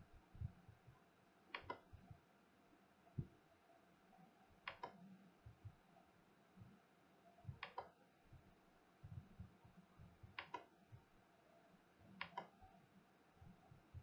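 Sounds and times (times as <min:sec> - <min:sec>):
soft low thumps: 0:00.2 - 0:01.0, 0:05.4 - 0:05.8, 0:08.3 - 0:11.1
mouse button clicks: 0:01.5 - 0:01.8, 0:04.7 - 0:05.0, 0:07.6 - 0:07.9, 0:10.4 - 0:10.7, 0:12.2 - 0:12.5.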